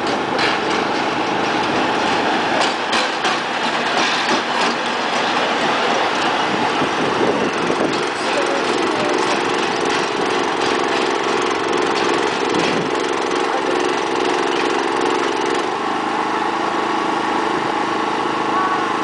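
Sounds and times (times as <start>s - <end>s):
diesel locomotive engine running: 0.0s - 19.0s.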